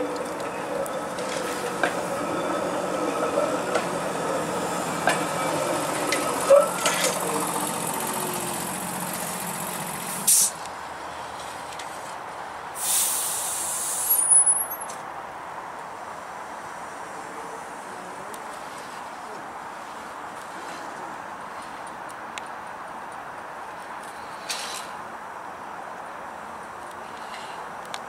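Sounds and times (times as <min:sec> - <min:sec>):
wheels clacking over rail joints: 0:00.0 - 0:10.6
streetcar motor and wheels humming: 0:00.0 - 0:28.0
air hissing: 0:09.6 - 0:10.6, 0:12.8 - 0:14.2.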